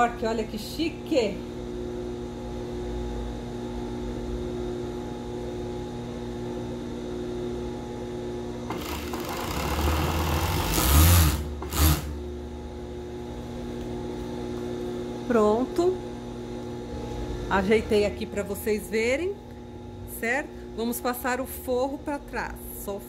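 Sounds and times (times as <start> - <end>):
overlock machine humming: 0.0 - 23.0
sewing machine stitching: 8.7 - 12.2.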